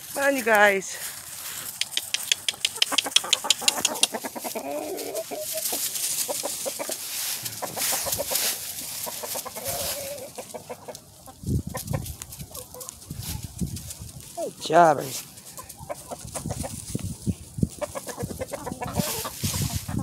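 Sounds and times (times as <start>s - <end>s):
chickens clucking: 1.4s - 20.0s
sharp clicks: 1.7s - 4.2s.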